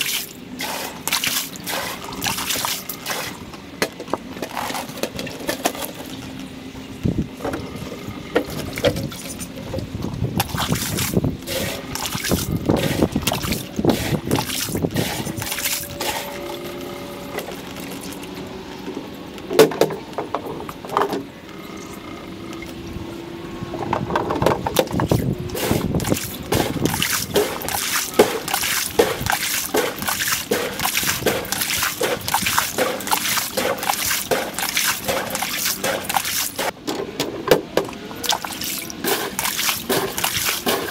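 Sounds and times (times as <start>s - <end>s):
water trickling and sloshing: 0.0s - 6.5s, 8.4s - 18.9s, 24.7s - 36.8s, 37.8s - 40.9s.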